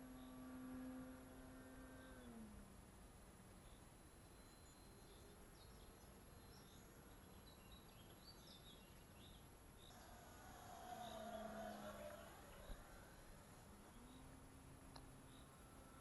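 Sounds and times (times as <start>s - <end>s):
faint bird chirps: 3.5s - 16.0s.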